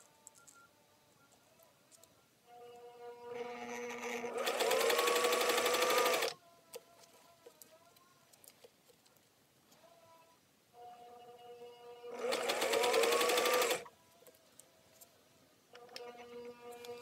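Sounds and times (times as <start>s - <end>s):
sewing machine stitching: 3.4s - 6.4s, 12.1s - 13.9s.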